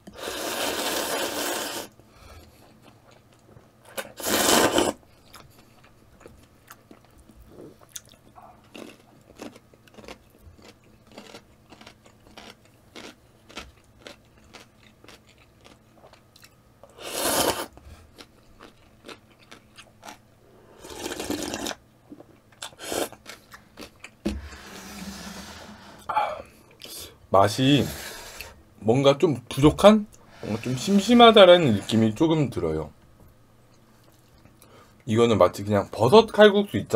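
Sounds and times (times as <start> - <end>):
loud noodle slurps: 0.2 - 2.0, 4.0 - 5.0, 17.0 - 17.7, 20.8 - 21.8, 22.8 - 23.2
person chewing noodles: 0.2 - 20.2, 20.8 - 24.2.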